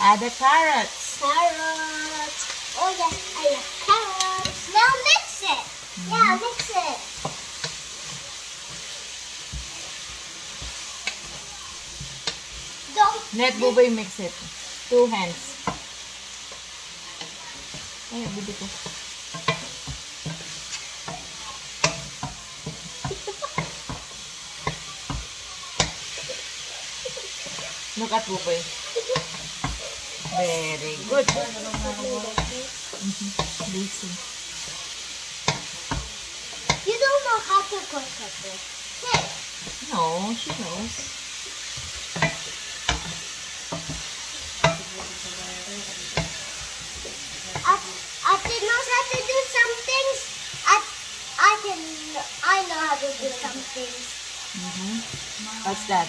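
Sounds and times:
food sizzling in a wok: 0.0 - 56.0
wooden spatula knocking on pan: 8.7 - 12.7, 17.2 - 26.1, 29.1 - 30.4, 31.2 - 32.6, 35.4 - 36.8, 41.7 - 45.2, 46.0 - 47.8.

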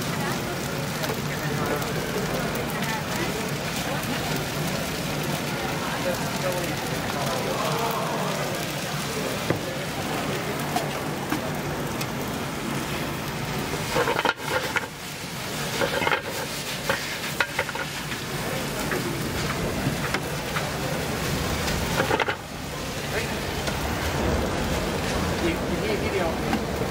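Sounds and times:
noodles sizzling in a wok: 0.0 - 26.9
metal tongs scraping a pan: 13.7 - 20.7, 21.6 - 22.4.

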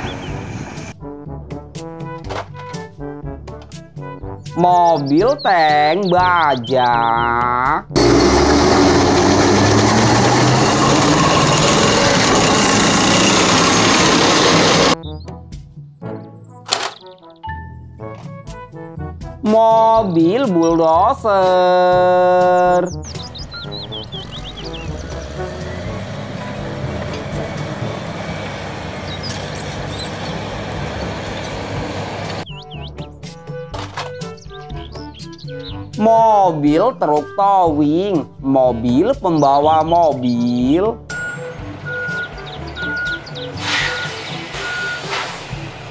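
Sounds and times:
tank engine and tracks running: 0.0 - 1.0, 7.9 - 15.0, 21.4 - 32.6, 41.1 - 45.9.

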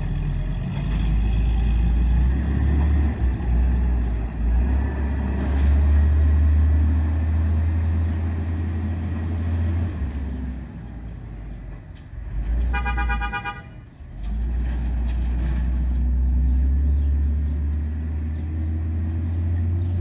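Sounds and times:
garbage truck engine rumbling: 0.0 - 20.0.

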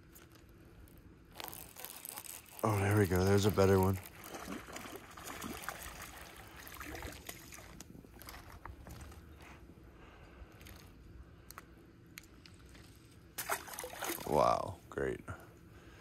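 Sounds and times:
low steady hum: 0.0 - 16.0
faint water splashing: 2.6 - 8.6, 13.4 - 14.8.

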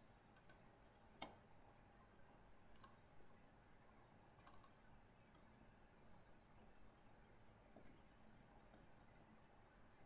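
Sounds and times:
computer mouse clicks: 0.3 - 0.6, 2.7 - 3.0, 4.4 - 5.5.

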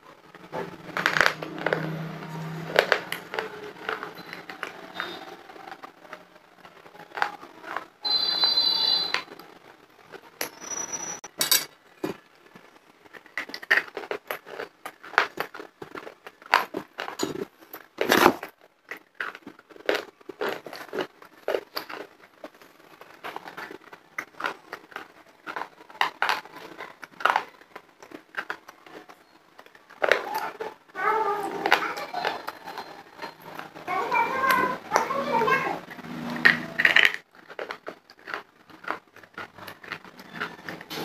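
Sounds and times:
crisp crunching and chewing: 0.2 - 10.5, 11.9 - 41.0
harsh scraping noise: 0.2 - 11.3, 30.0 - 41.0.

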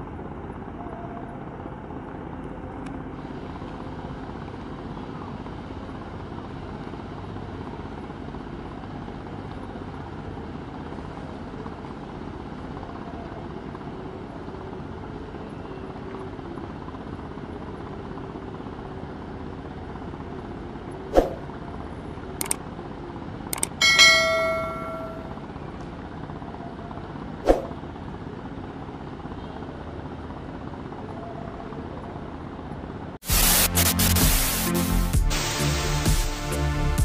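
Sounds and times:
mouse clicks: 23.5 - 23.8
bell-like ding: 23.8 - 25.5.

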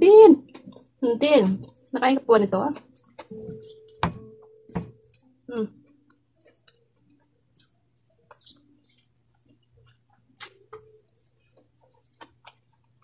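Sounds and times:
person chewing food: 0.4 - 2.0, 2.7 - 13.0
wet mouth clicks: 9.3 - 13.0.

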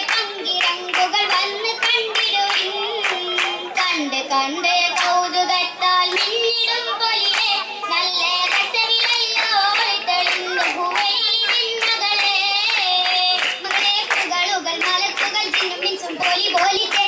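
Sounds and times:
rhythmic hand claps: 0.0 - 17.0
women singing: 0.0 - 17.0.

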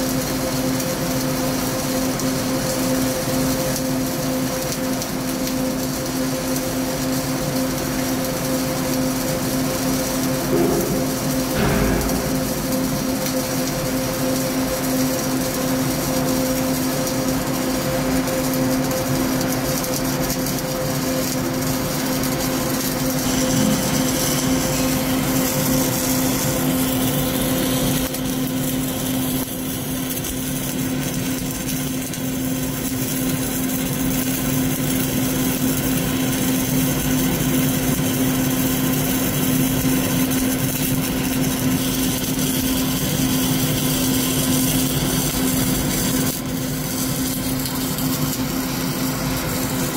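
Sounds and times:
welding arc sizzling: 0.0 - 49.9
low hum: 9.8 - 15.0, 23.2 - 28.2.

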